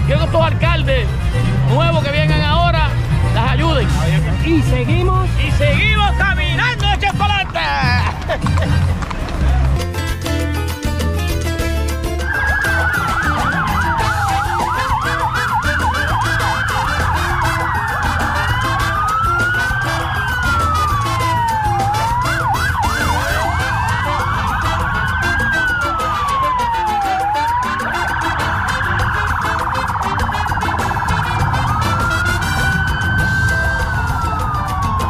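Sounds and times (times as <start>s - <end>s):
siren wailing: 12.2s - 35.0s
siren yelping warble: 12.2s - 35.0s.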